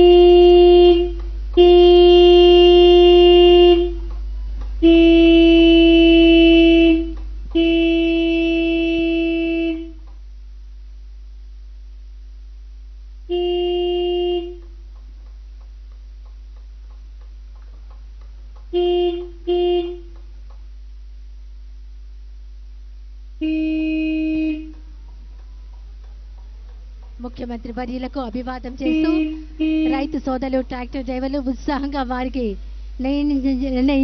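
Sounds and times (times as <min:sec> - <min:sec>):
tractor horn blasts: 0:00.0 - 0:04.2, 0:04.8 - 0:10.0, 0:13.3 - 0:14.8, 0:18.6 - 0:20.2, 0:23.4 - 0:24.8, 0:28.7 - 0:30.3
faint steady hum: 0:00.0 - 0:34.0.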